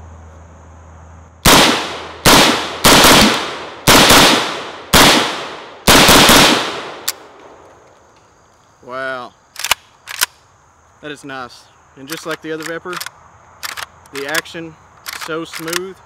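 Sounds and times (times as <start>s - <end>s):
rifle single shots ringing: 1.4s - 7.6s
sharp click: 7.0s - 8.3s, 9.5s - 10.4s, 12.0s - 15.9s.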